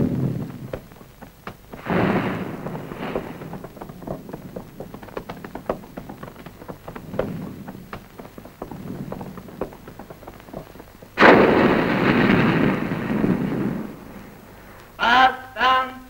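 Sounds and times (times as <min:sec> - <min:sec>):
horses' hooves clopping: 0:00.0 - 0:14.9
artillery fire blast: 0:01.7 - 0:05.2, 0:11.2 - 0:14.7.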